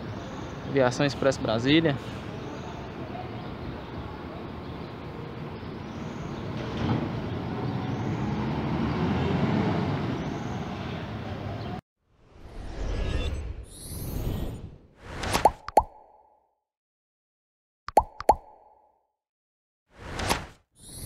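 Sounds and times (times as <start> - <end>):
bus diesel engine accelerating: 6.7 - 11.8.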